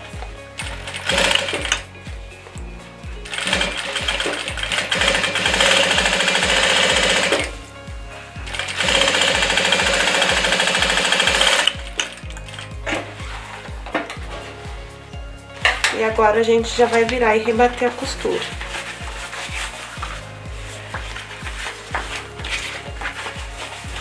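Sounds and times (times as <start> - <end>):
background music with steady beat: 0.0 - 24.0
sewing machine stitching: 0.8 - 1.8, 3.3 - 7.5, 8.6 - 11.8.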